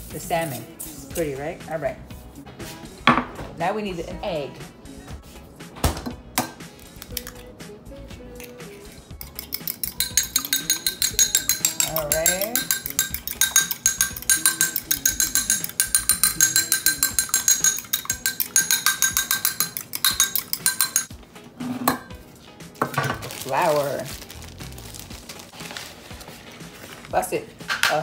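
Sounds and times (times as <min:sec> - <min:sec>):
utensil clinking against glass: 0:09.2 - 0:21.1.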